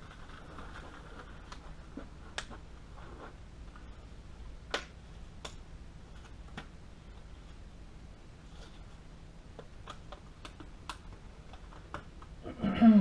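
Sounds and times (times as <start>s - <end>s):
disposable gloves snapping: 4.7s - 5.6s.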